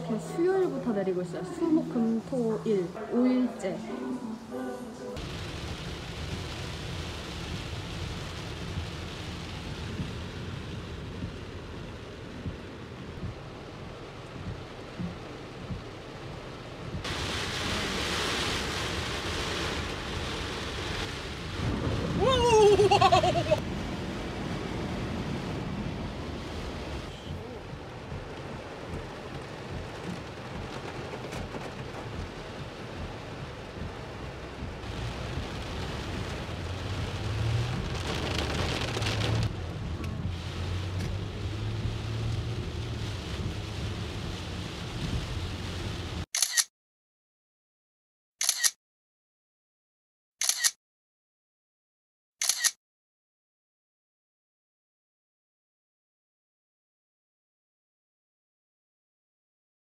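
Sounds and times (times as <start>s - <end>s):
road and engine hum: 0.0s - 46.7s
water splashing against car: 5.2s - 46.2s
heavy rain drumming on a car: 5.2s - 46.3s
camera shutter click: 46.4s - 46.7s, 48.4s - 48.8s, 50.4s - 50.8s, 52.4s - 52.8s.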